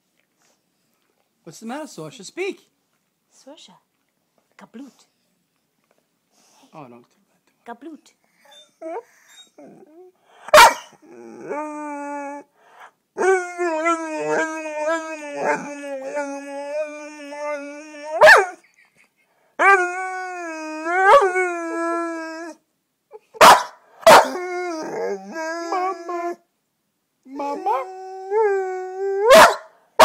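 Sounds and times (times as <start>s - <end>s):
dog yapping: 10.4s - 11.0s, 18.2s - 18.6s, 23.4s - 24.4s, 29.2s - 29.7s
dog barking: 10.5s - 10.9s, 18.2s - 18.5s, 23.4s - 24.4s, 29.3s - 30.0s.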